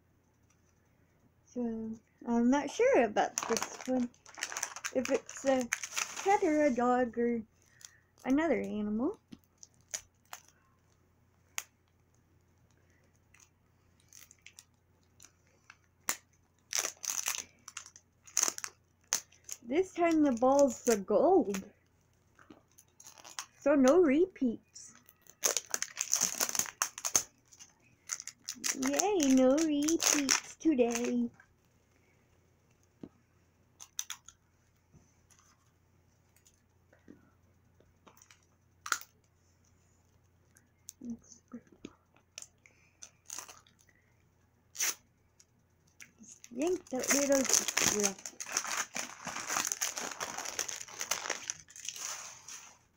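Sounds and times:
plastic wrapping crinkling and tearing: 0:02.7 - 0:08.8, 0:09.4 - 0:10.6, 0:13.3 - 0:21.7, 0:22.5 - 0:23.6, 0:24.9 - 0:31.3, 0:33.8 - 0:34.4, 0:42.3 - 0:43.9, 0:46.2 - 0:52.8.

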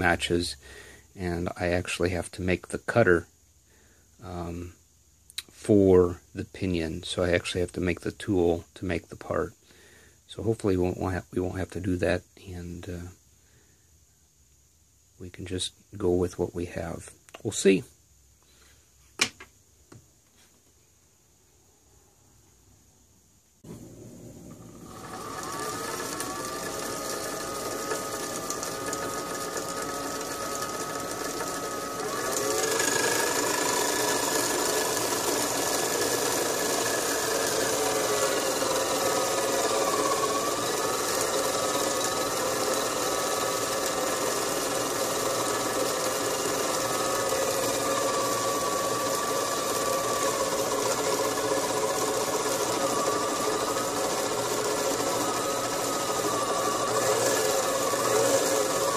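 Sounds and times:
small electric motor whining: 0:24.4 - 0:58.9.

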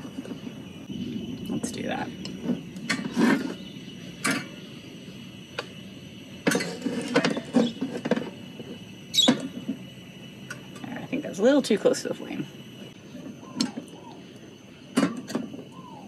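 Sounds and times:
camp stove burning: 0:00.0 - 0:16.0
metal knocks and scrapes: 0:02.4 - 0:04.5, 0:06.4 - 0:08.4
metal clank: 0:06.4 - 0:08.4.

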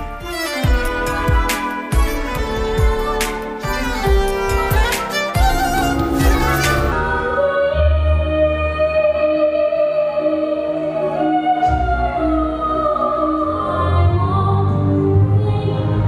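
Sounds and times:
instrumental accompaniment: 0:00.0 - 0:08.0
woman singing into a microphone: 0:05.4 - 0:16.0.

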